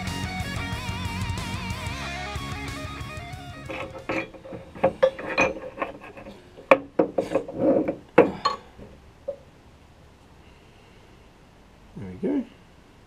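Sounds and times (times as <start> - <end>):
metal parts rubbing: 3.5 - 9.4
metallic clinks and knocks: 3.6 - 9.4.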